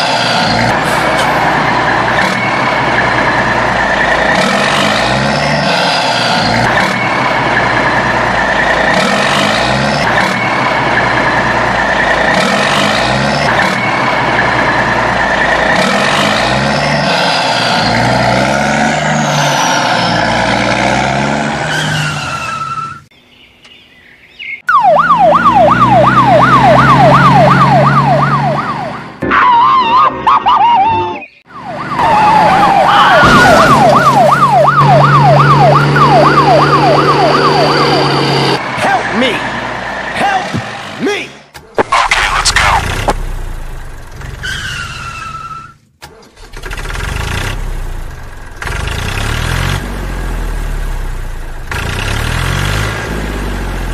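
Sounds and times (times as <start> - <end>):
engine and traffic noise: 0.0 - 53.9
electronic yelp siren: 24.6 - 38.6.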